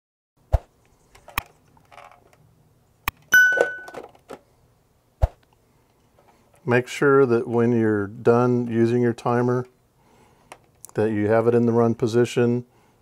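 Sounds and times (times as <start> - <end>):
bell ding: 3.3 - 4.0.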